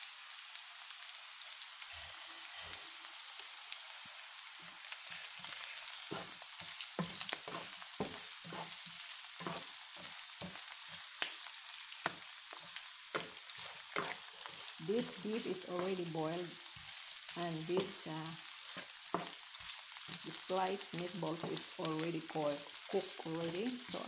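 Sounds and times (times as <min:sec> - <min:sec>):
food sizzling in hot oil: 0:00.0 - 0:24.0
spatula scraping and tapping pan: 0:05.4 - 0:15.0, 0:16.4 - 0:20.3, 0:21.3 - 0:21.7.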